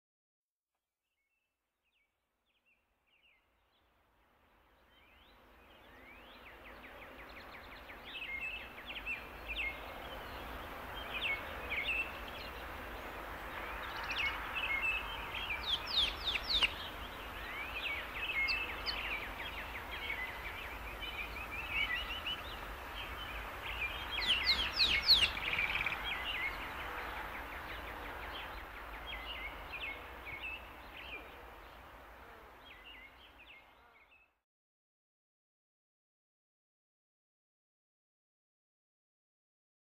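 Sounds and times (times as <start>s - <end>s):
outdoor ambience hiss: 2.6s - 34.2s
birds chirping: 5.0s - 31.9s.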